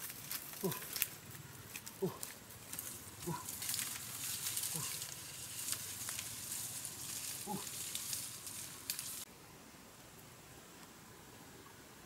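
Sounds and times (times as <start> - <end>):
leaves rustling and crackling: 0.0 - 11.0
short animal calls: 7.4 - 7.9.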